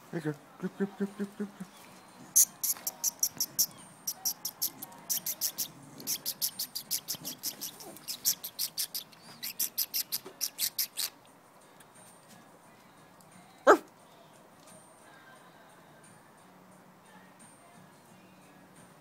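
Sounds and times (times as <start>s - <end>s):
quick high clicking: 2.4s - 11.2s
dog yap: 13.7s - 13.9s.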